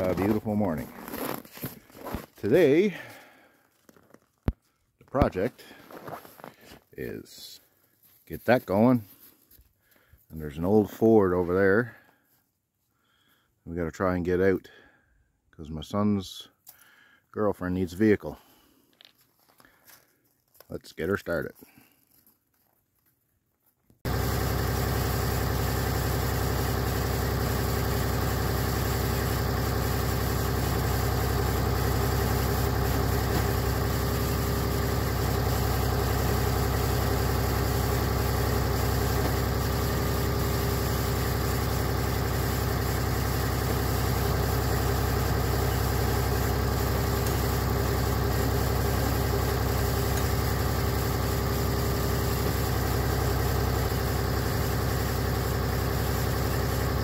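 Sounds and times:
engine idling: 24.0s - 57.0s.

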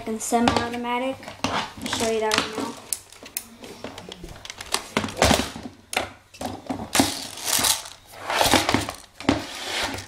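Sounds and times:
rifle handling rustling and scraping: 7.0s - 9.1s.

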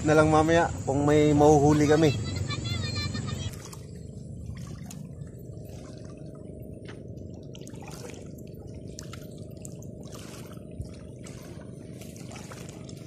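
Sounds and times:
small waves lapping: 0.0s - 13.0s
little water splashes: 3.4s - 13.0s.

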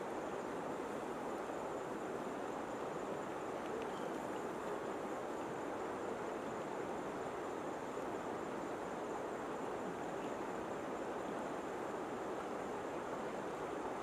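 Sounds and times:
river water rushing and lapping: 0.0s - 14.0s.

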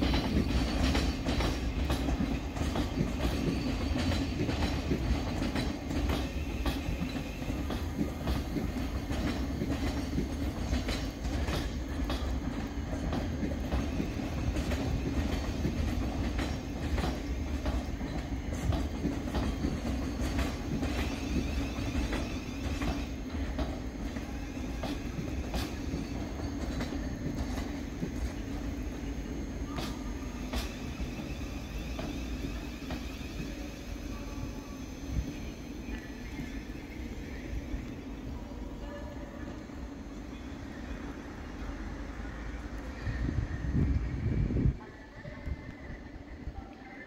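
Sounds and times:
wheels clicking over rail joints: 0.0s - 29.1s
train rumbling: 0.0s - 47.0s.

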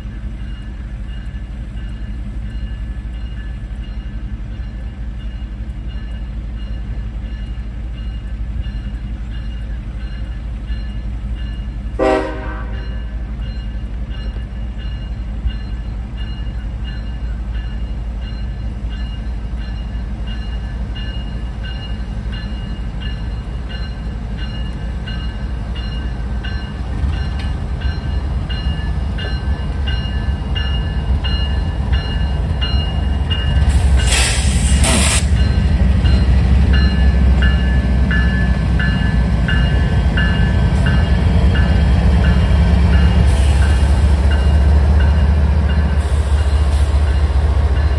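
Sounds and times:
diesel locomotive rumble: 0.0s - 47.9s
railroad crossing bell ringing: 0.0s - 47.9s
train horn blast: 12.0s - 13.0s.

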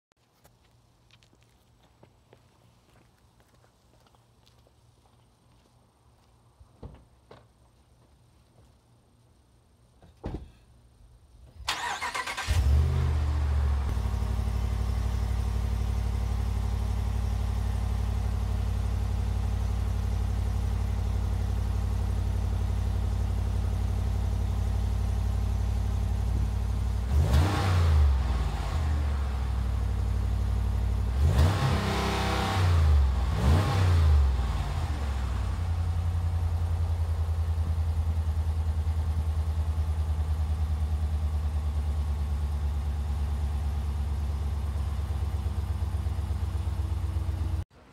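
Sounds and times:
engine revving: 11.7s - 14.7s, 27.0s - 29.5s, 31.0s - 35.7s
vvehicle engine idling deeply: 13.0s - 27.3s, 34.2s - 47.9s.

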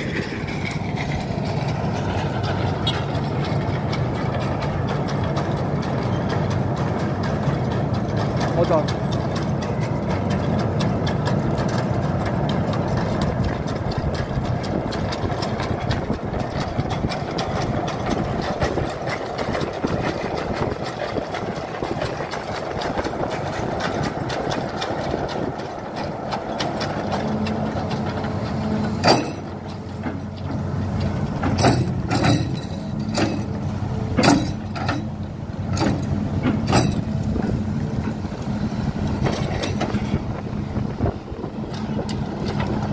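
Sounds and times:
engine running: 0.0s - 42.9s.

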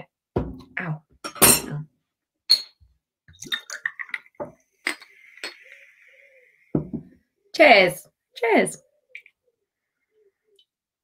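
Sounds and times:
glass and ice clinking: 2.5s - 5.6s.

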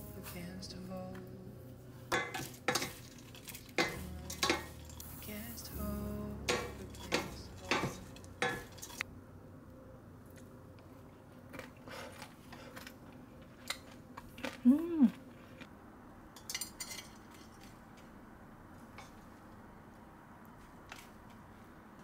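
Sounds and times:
utensils knocking and scraping a pot: 2.1s - 5.4s, 6.5s - 9.0s.

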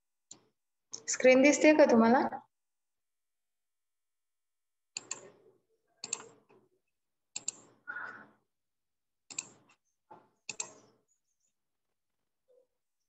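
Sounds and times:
keyboard and mouse clicks: 4.9s - 5.4s, 6.0s - 6.6s, 7.3s - 7.8s, 9.3s - 9.8s, 10.4s - 10.9s.

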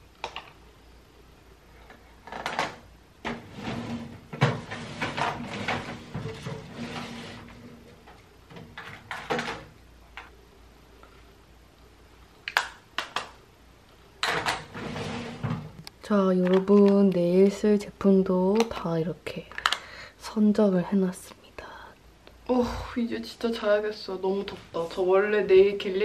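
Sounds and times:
drawer sliding: 2.2s - 9.7s, 14.2s - 15.8s
items rattling in plastic drawer: 2.3s - 9.7s.

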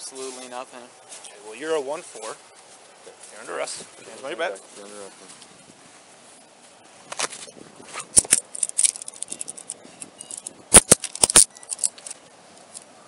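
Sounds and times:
handcuffs clicking and jangling: 8.2s - 12.2s.

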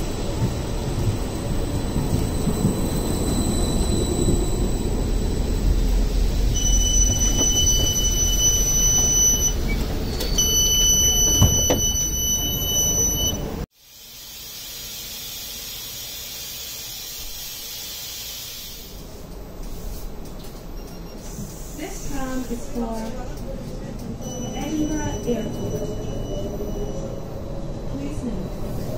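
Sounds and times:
tram interior hum: 0.0s - 13.7s, 14.8s - 28.9s
high electronic door beep: 6.6s - 13.6s.

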